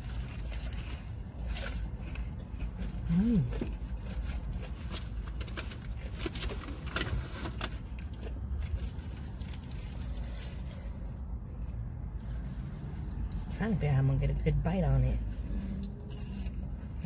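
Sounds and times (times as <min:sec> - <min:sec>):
chewing crispy food: 0:00.0 - 0:13.6, 0:15.1 - 0:17.0
low rumble: 0:07.9 - 0:17.0.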